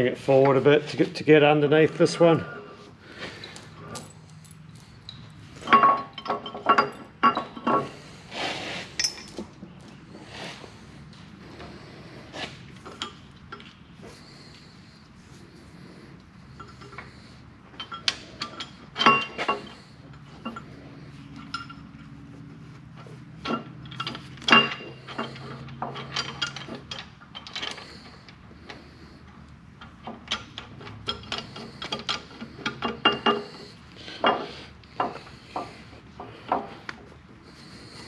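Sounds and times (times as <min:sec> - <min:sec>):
metal nuts and washers clinking: 0:03.8 - 0:08.0, 0:08.9 - 0:09.5, 0:21.4 - 0:22.0, 0:23.4 - 0:28.0.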